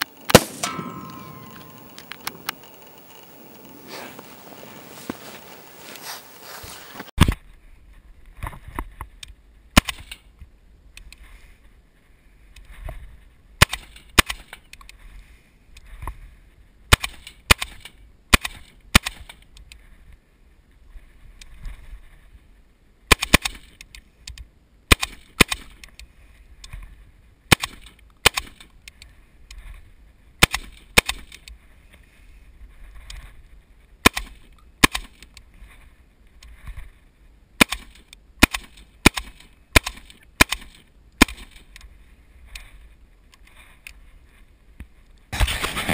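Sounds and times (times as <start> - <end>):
rifle gunshots: 0.3 - 2.5.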